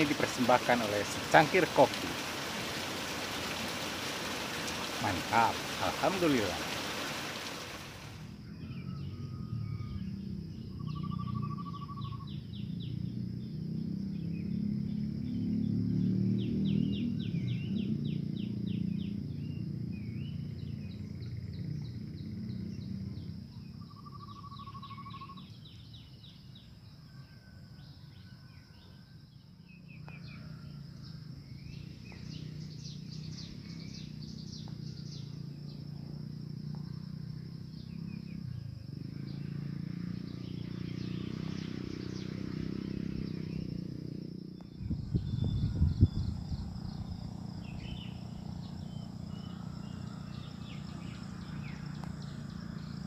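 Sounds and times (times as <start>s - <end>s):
small birds chirping: 0.0s - 9.2s, 31.2s - 53.0s
high insect drone: 0.0s - 27.0s, 29.2s - 53.0s
low rumble: 44.7s - 50.6s.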